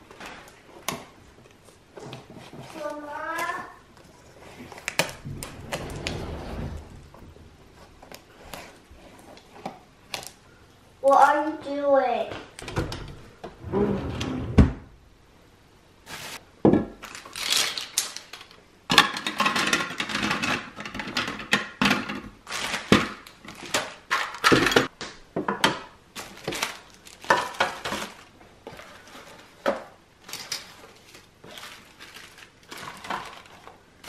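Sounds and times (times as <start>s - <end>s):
plastic organizers clattering: 16.8s - 34.0s.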